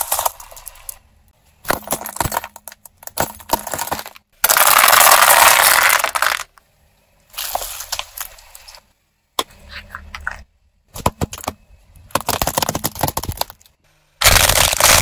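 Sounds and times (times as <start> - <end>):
plastic cracking and shattering: 11.0 - 15.0.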